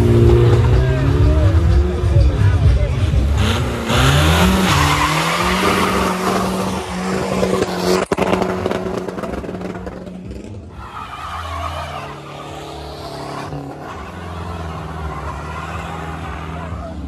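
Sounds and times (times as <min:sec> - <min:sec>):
car engine revving: 0:00.0 - 0:17.0
tyres squealing: 0:03.9 - 0:08.1.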